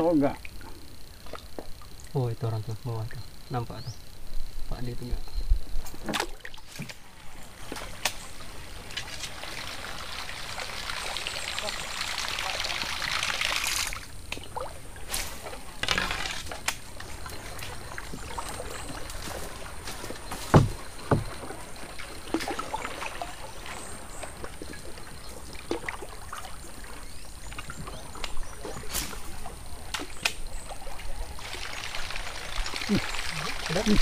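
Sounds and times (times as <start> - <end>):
water sloshing: 6.0 - 34.0
knocks against canoe hull: 20.3 - 21.4
heavy thumps: 20.4 - 21.4.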